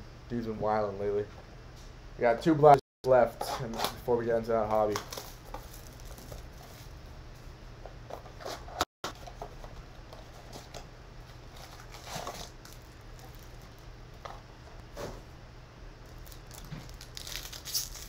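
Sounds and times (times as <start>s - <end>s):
steady low hum: 0.0s - 18.0s
hands rustling card packs: 4.7s - 6.9s, 11.3s - 13.8s, 16.1s - 18.0s.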